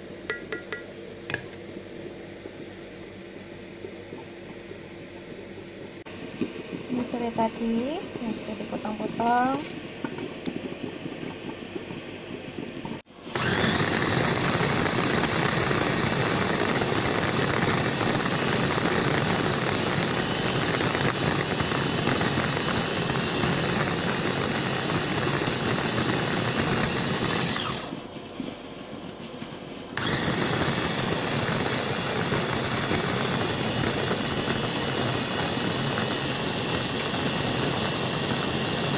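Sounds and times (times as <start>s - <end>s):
blades churning: 6.1s - 38.9s
food chopper motor whine: 13.2s - 28.0s, 30.0s - 38.9s.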